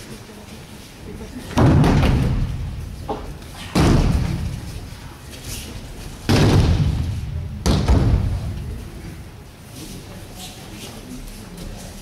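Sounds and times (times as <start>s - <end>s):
body slamming onto mat: 3.7s - 4.5s, 6.3s - 8.5s.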